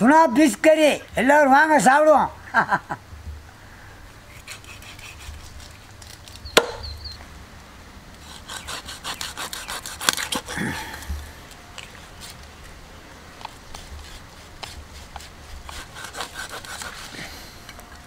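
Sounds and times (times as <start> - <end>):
cleaver chopping on wood: 6.6 - 6.8.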